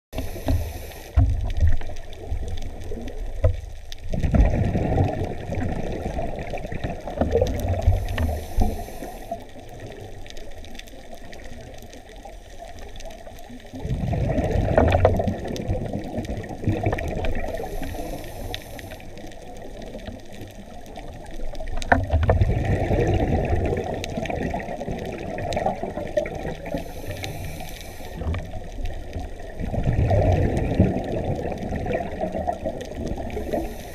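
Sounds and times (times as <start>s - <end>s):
regulator inhalation hiss: 0.2s - 1.2s, 7.9s - 9.5s, 17.5s - 19.2s, 26.7s - 28.3s, 33.3s - 33.9s
faint clicks: 0.2s - 13.8s, 14.4s - 33.9s
bubbling underwater exhalations: 4.1s - 8.8s, 13.7s - 17.8s, 22.0s - 27.5s, 28.2s - 33.9s.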